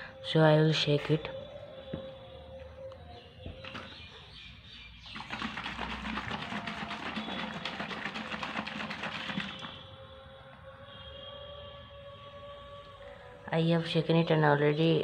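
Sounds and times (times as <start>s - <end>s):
liquid shaken in a bottle: 5.0s - 9.9s.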